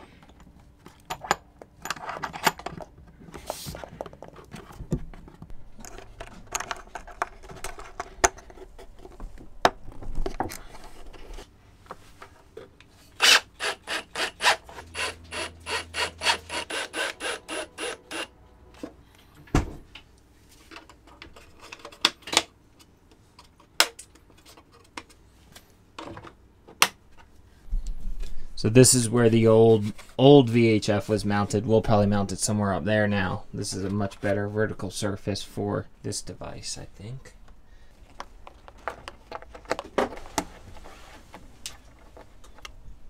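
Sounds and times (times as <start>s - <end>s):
cordless drill driving screws: 13.2s - 18.3s.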